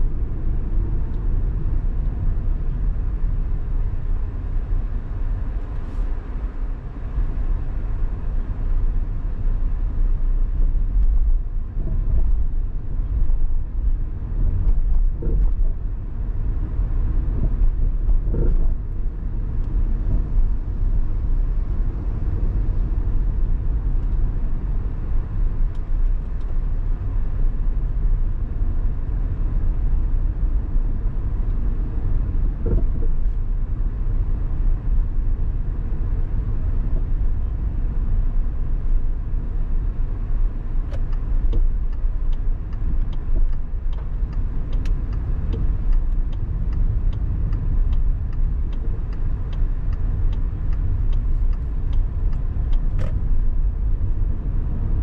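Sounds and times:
car engine and road rumble: 0:00.0 - 0:55.0
faint regular ticking: 0:40.9 - 0:53.2.

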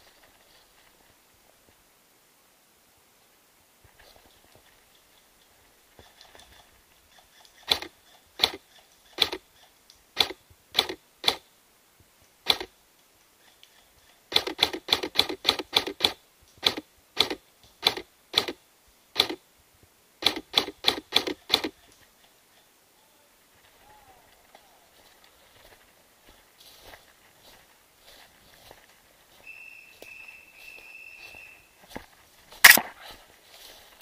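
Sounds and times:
airsoft gun firing: 0:32.6 - 0:33.0.

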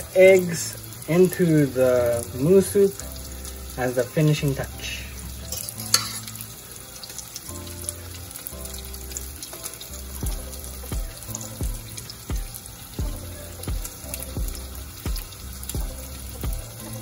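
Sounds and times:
soup simmering in a pot: 0:00.0 - 0:17.0
fork clinking against pot: 0:05.5 - 0:06.4
music with bass and beat: 0:10.0 - 0:17.0.

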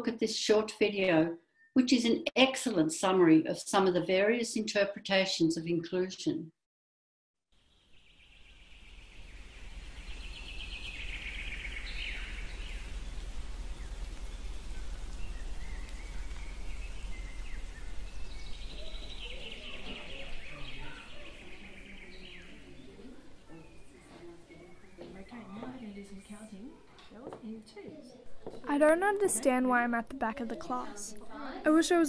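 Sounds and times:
high-pitched bird chatter: 0:17.3 - 0:25.2.

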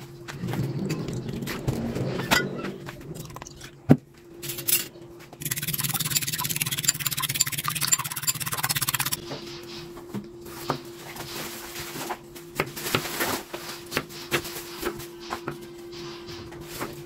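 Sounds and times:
fork beating eggs in bowl: 0:05.4 - 0:09.2.

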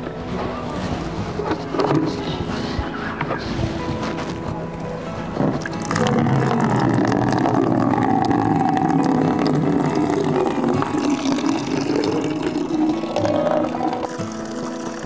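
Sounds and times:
water pouring into plastic bucket: 0:05.7 - 0:15.0.

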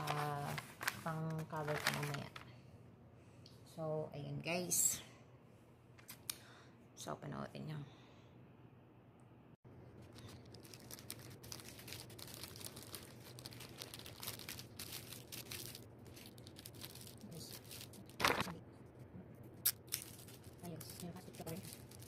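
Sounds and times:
wrapper crinkling: 0:00.0 - 0:02.6, 0:10.0 - 0:18.6, 0:19.6 - 0:22.0.

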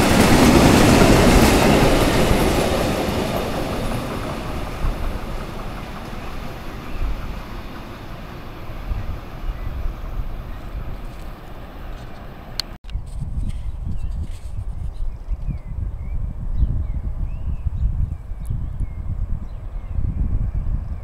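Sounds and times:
freight train rumbling over rails: 0:00.0 - 0:12.8.

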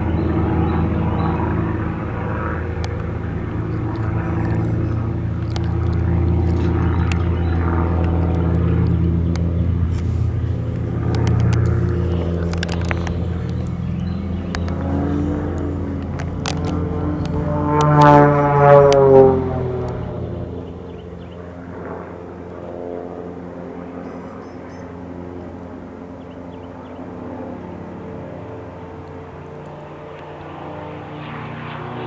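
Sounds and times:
airplane engine and propeller droning: 0:00.0 - 0:32.0
sharp clicks: 0:02.8 - 0:19.1.

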